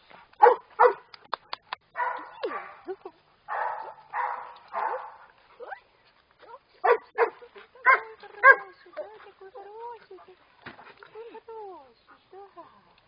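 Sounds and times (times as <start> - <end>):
dogs barking: 0.4 - 1.1, 2.0 - 2.9, 3.5 - 5.3, 6.8 - 8.8.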